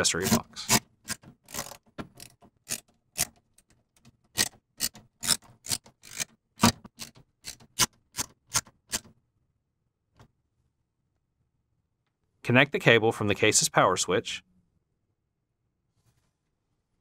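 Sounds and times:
screwdriver clicking and scraping: 0.2s - 9.2s.

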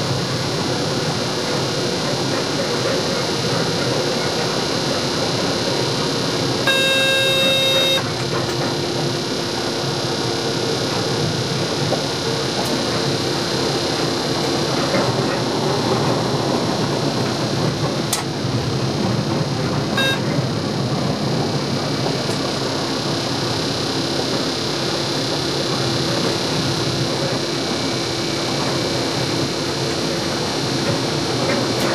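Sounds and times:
train cab rolling rumble and hiss: 0.0s - 31.9s
electronic beep: 6.7s - 8.1s, 20.0s - 20.2s.

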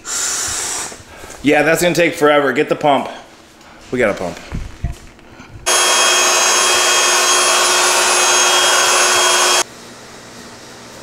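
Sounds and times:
electric air pump whining: 5.6s - 9.7s.

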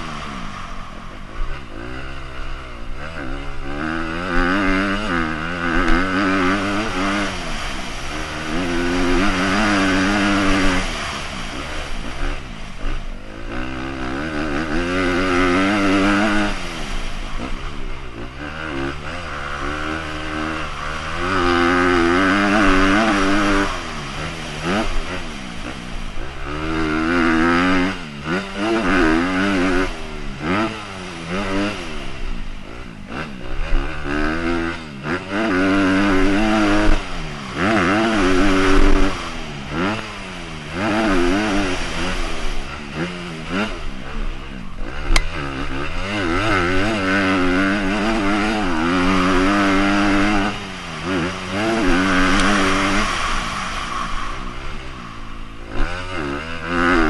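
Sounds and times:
dirt bike engine revving: 0.0s - 57.0s
sharp click: 45.1s - 45.3s.

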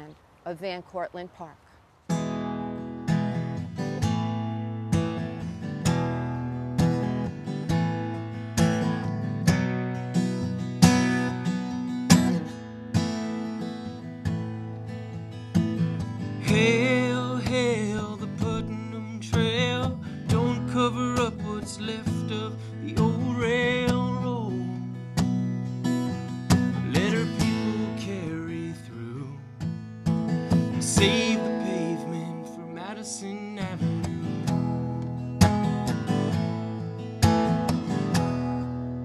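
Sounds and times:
acoustic guitar strumming: 2.0s - 39.0s
person singing with vibrato: 30.9s - 34.1s.

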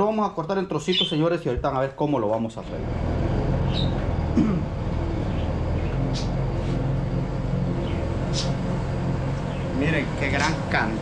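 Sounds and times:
motor humming: 2.6s - 11.0s.

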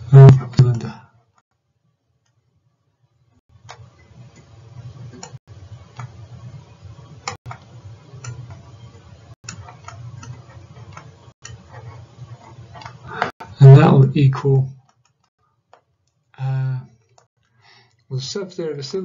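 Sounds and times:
steady low hum: 3.5s - 14.8s.

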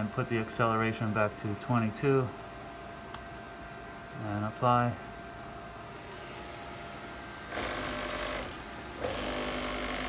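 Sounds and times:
servo motor whine: 7.5s - 10.0s.

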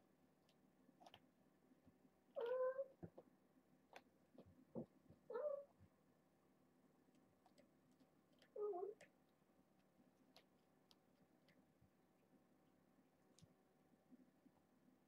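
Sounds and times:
kittens meowing: 2.4s - 3.0s, 5.3s - 5.7s.

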